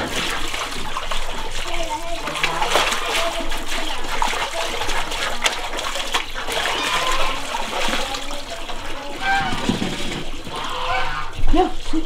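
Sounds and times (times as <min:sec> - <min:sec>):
water spilling over rim: 0:00.0 - 0:12.0
water splashing and sloshing: 0:00.0 - 0:12.0
plastic knocks: 0:09.3 - 0:10.4.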